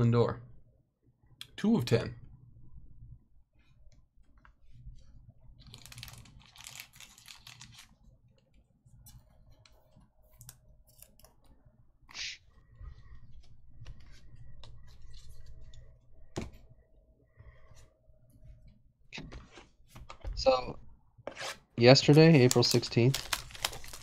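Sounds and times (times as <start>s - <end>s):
cards rustling: 5.6s - 9.7s, 21.9s - 24.0s.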